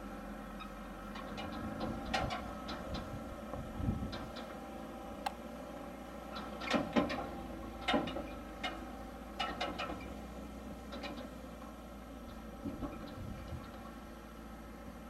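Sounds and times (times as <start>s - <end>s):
low engine rumble: 0.0s - 15.0s
trailer clanking and knocking: 1.1s - 4.8s, 6.2s - 14.1s.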